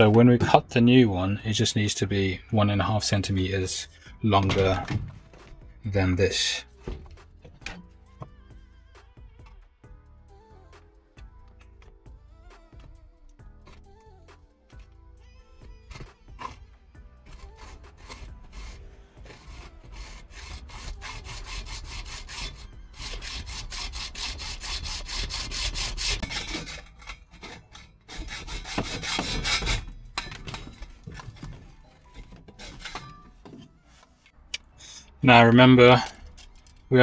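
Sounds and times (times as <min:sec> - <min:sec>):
hacksaw cutting pipe: 0:15.6 - 0:33.7.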